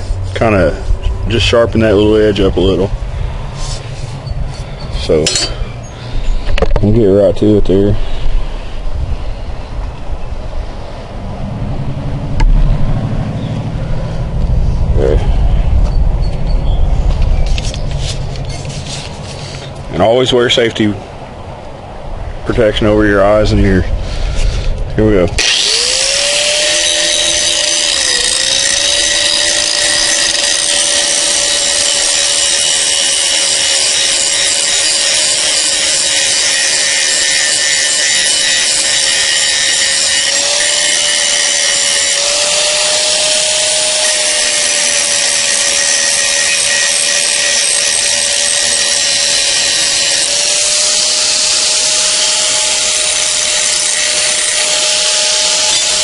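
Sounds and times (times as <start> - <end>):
angle grinder grinding steel: 3.5 - 9.4, 25.3 - 56.0.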